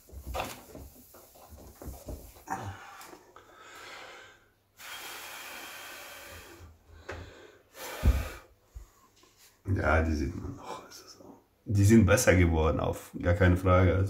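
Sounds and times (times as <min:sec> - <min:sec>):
thump: 0:08.0 - 0:08.3.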